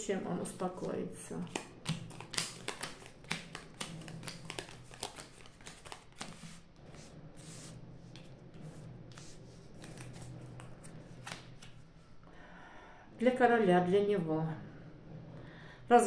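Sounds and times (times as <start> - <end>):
playing cards slapping on table: 1.4 - 6.6.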